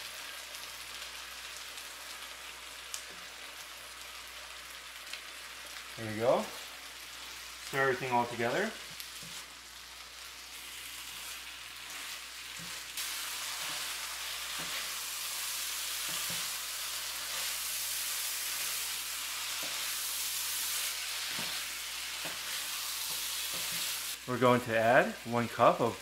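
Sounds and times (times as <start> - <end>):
food sizzling in frying pan: 0.0 - 26.0
spatula scraping pan: 10.5 - 24.2.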